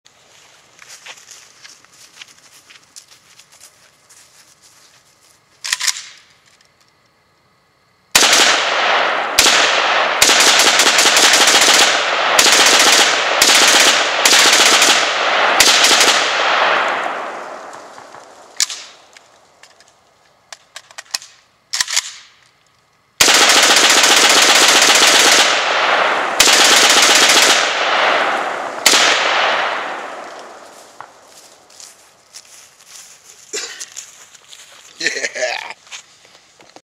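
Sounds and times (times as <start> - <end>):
rifle shots in rapid strings: 8.2 - 17.3, 23.2 - 30.2
gunshot echo: 8.2 - 19.0, 25.2 - 31.2.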